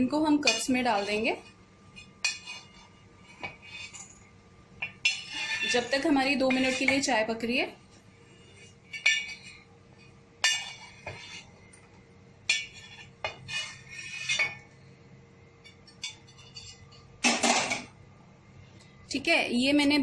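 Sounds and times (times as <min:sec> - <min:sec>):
metal spatula scraping griddle: 0:00.4 - 0:04.2, 0:05.0 - 0:07.1, 0:10.4 - 0:11.6, 0:12.5 - 0:14.6.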